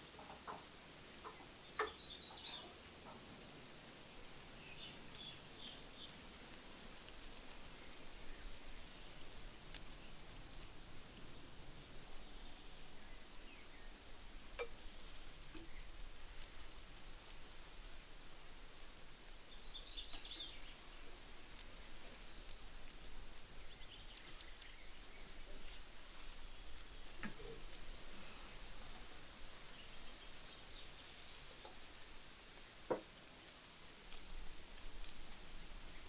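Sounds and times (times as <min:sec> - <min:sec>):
birds chirping: 0:00.4 - 0:03.2, 0:07.8 - 0:18.6, 0:19.4 - 0:32.5
faint clicks: 0:04.3 - 0:36.0.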